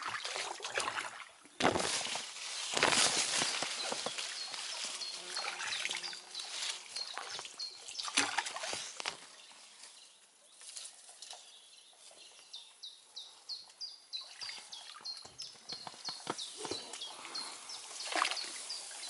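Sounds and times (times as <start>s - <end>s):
bird chirping: 3.1s - 19.0s.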